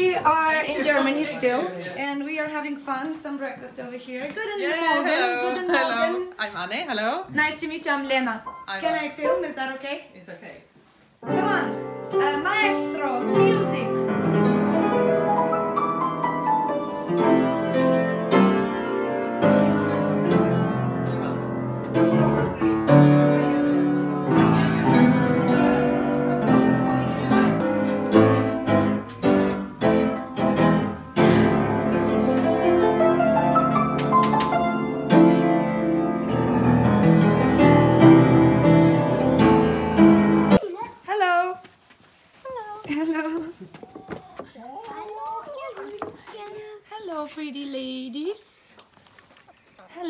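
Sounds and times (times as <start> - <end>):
upright piano playing: 8.4 - 9.8, 11.2 - 40.6.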